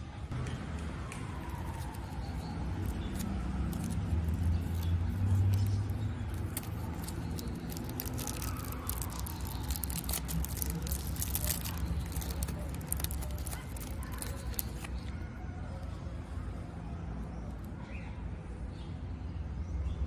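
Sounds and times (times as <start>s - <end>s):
vehicle passing by: 0.4s - 13.4s
foil candy wrapper crinkling: 1.4s - 15.1s.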